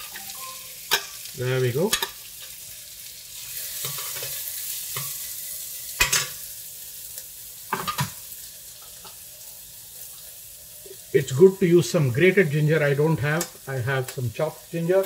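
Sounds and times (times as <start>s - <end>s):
onions sizzling in oil: 0.0s - 15.0s.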